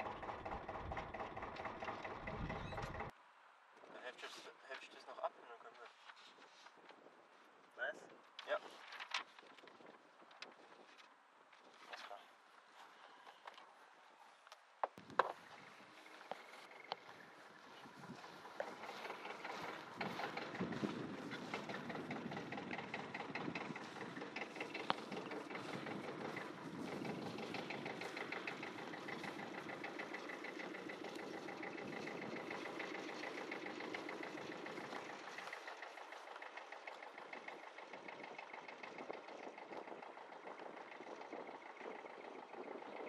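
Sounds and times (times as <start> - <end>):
engine running with fast pulsing: 0.0 - 3.1, 15.3 - 43.0.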